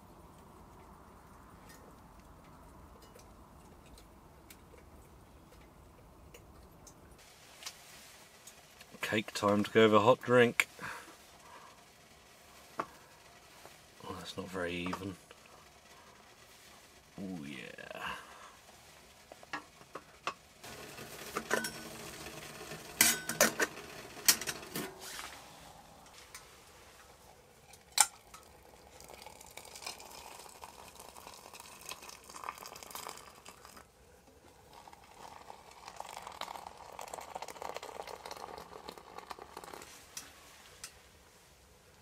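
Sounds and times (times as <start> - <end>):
kettle hissing: 7.2 - 42.0
water pouring into a mug: 20.6 - 24.8, 27.8 - 33.9, 34.5 - 40.1
metal kettle lid clinking: 21.2 - 24.9.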